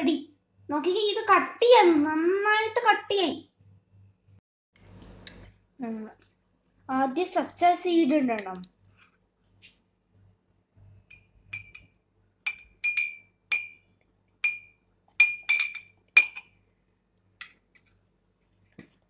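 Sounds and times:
spoon clinking against dishware: 11.1 - 13.8, 14.4 - 16.6.

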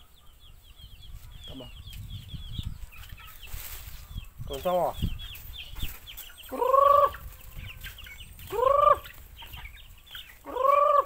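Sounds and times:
chicks peeping: 0.0 - 11.0
chicken drawn-out calls: 2.8 - 11.0.

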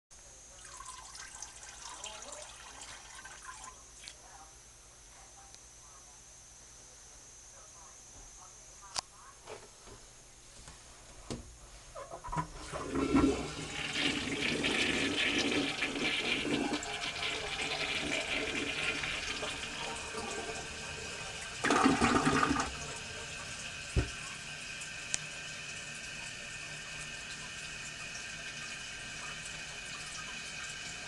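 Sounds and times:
toilet flushing: 0.6 - 3.8, 12.2 - 31.0
toilet tank refilling hiss: 12.4 - 31.0.

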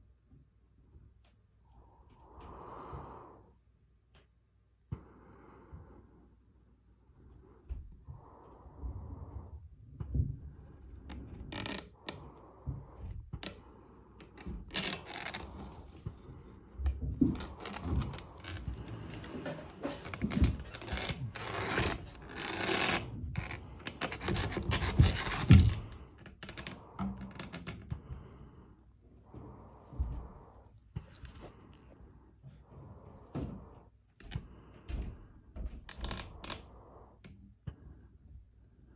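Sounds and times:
cable rubbing and scraping: 8.7 - 28.3.

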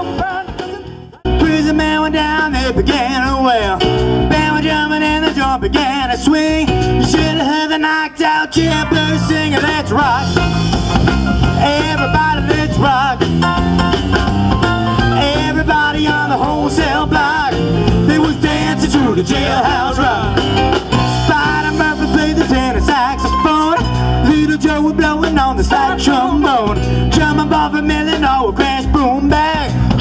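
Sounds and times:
rock band playing: 0.0 - 30.0
person singing: 15.1 - 30.0.

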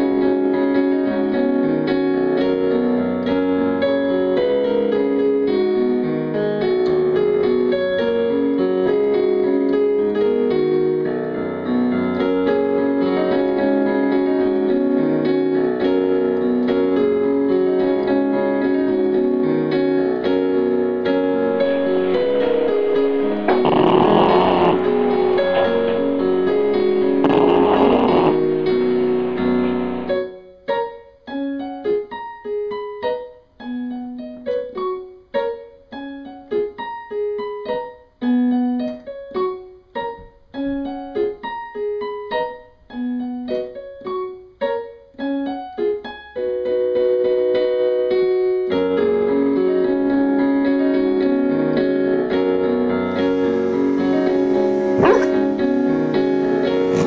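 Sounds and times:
piano music: 0.0 - 39.6, 49.1 - 57.0
noisy swells: 21.4 - 30.2, 53.1 - 57.0.

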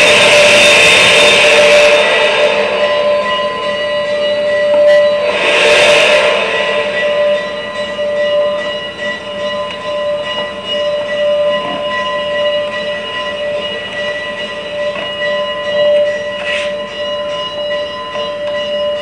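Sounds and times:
model train motor whine: 0.0 - 9.9.

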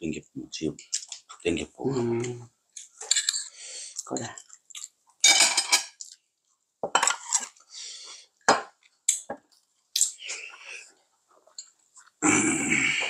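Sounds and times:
spoon and chopsticks clinking on bowls: 3.0 - 4.5, 5.2 - 6.2.

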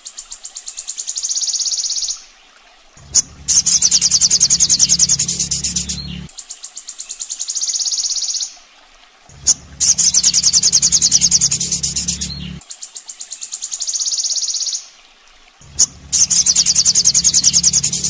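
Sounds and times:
bird song with fast trills: 3.0 - 8.5, 9.3 - 14.8, 15.6 - 18.0.

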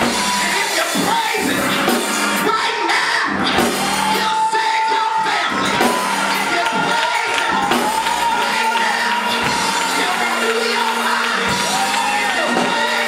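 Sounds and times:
drum kit playing: 0.0 - 13.0
organ: 5.2 - 13.0.

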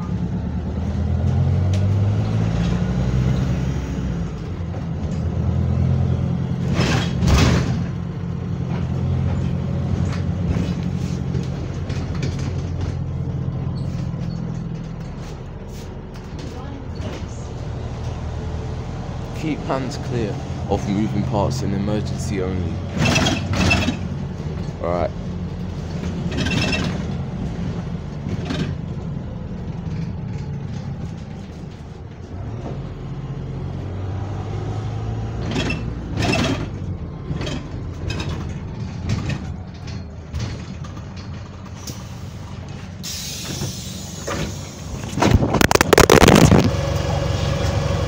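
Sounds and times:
bus engine droning: 0.0 - 48.0
bodywork knocks and rattles: 8.6 - 13.4.

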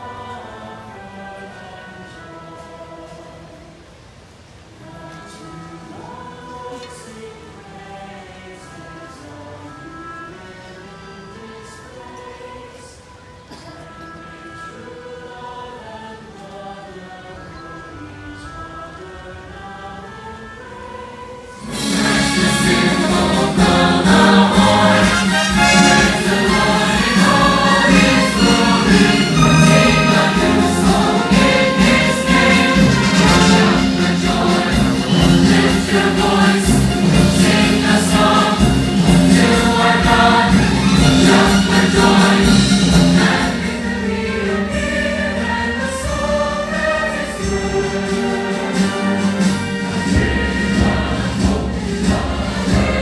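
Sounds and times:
choir singing: 0.0 - 3.9, 4.7 - 53.0
orchestra playing: 17.8 - 53.0.

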